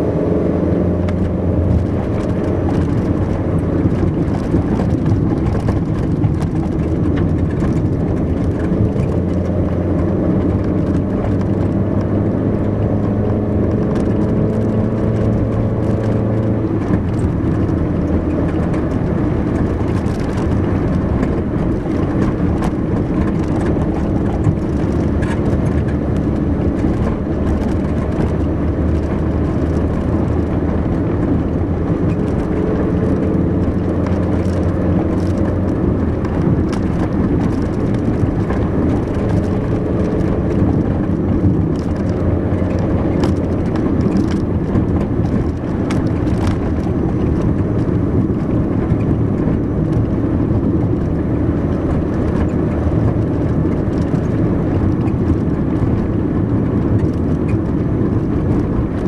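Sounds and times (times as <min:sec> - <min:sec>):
car engine hum: 0:00.0 - 0:59.0
tyre and road noise: 0:00.0 - 0:59.0.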